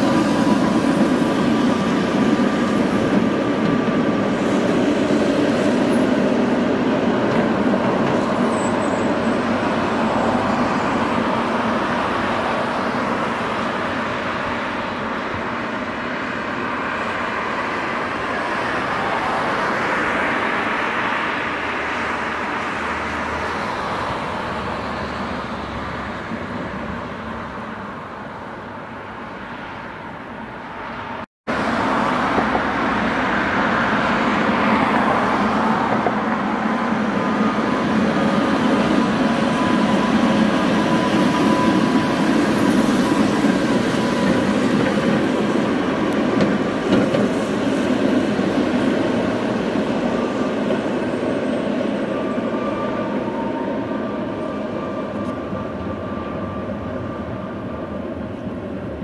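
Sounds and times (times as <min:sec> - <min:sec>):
rail train rumbling past: 0:00.0 - 0:59.0.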